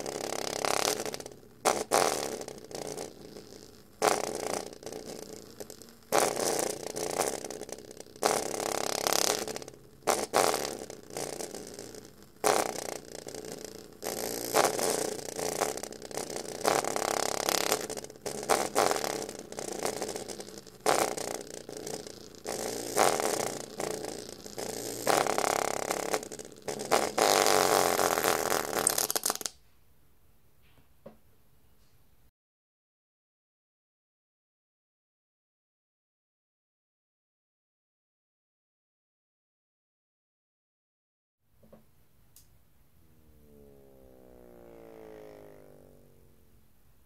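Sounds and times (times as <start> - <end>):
speaker buzzing distortion: 0.0 - 29.5, 41.6 - 47.0.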